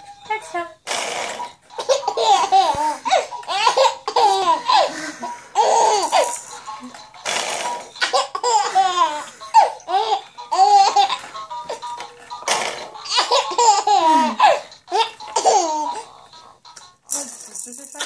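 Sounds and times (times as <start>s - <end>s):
baby laughing: 1.7s - 16.2s
breathy gasps: 4.5s - 5.6s.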